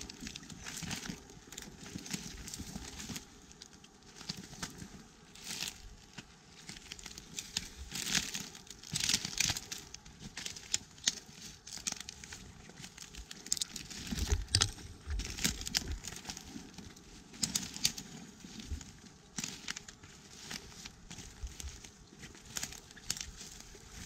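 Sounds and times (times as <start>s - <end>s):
leaf litter rustling and crackling: 0.0s - 24.0s.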